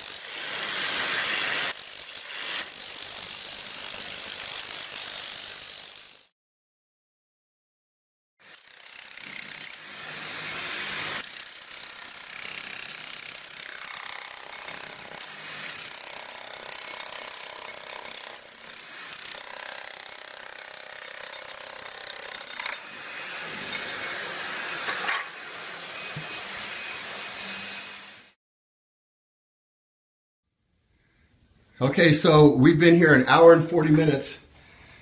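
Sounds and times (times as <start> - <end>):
demolition hammer chipping tile: 8.5 - 22.8.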